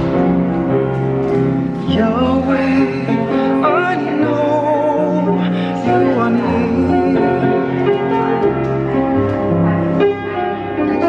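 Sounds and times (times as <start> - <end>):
piano accompaniment: 0.0 - 11.0
person singing a hymn: 1.8 - 8.1.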